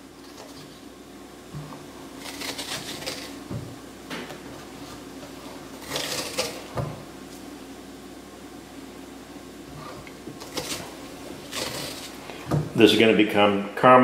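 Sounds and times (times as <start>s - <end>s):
spoon scraping pumpkin: 2.2s - 3.5s, 4.9s - 6.7s, 9.8s - 12.2s.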